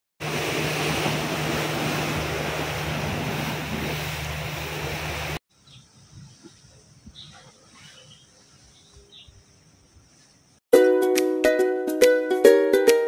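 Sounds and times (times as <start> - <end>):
sea surf washing against rocks: 0.2 - 5.4
wind on microphone: 0.2 - 10.2.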